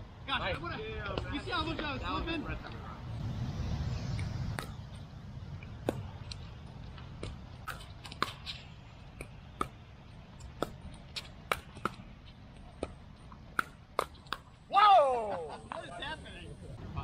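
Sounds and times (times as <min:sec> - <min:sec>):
ball bouncing on court: 0:04.5 - 0:05.0, 0:05.8 - 0:06.4, 0:09.2 - 0:09.8, 0:10.4 - 0:12.1, 0:12.7 - 0:14.5.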